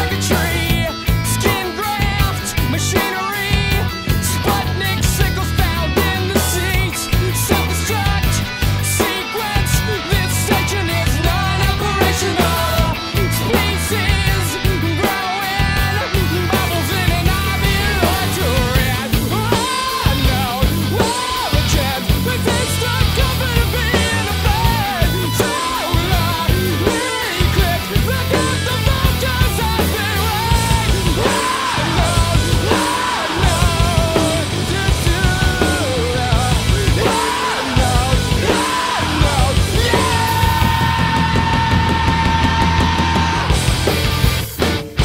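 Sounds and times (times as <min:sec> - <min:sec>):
bass guitar: 0:00.0 - 0:45.0
distorted electric guitars: 0:00.0 - 0:45.0
drums: 0:00.0 - 0:45.0.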